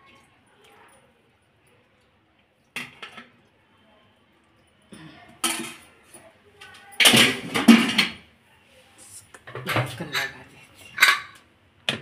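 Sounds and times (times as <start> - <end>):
metal pots and utensils clattering: 2.8 - 3.3, 5.4 - 8.3, 9.4 - 12.0.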